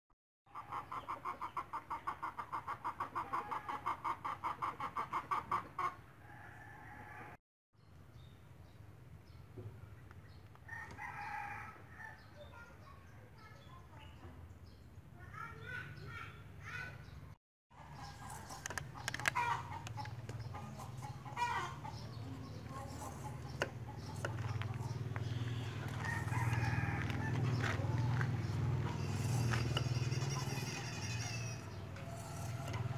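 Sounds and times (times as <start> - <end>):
chickens clucking: 0.5 - 7.2, 17.7 - 32.9
vegetable peeler scraping: 18.0 - 19.7, 28.7 - 32.9.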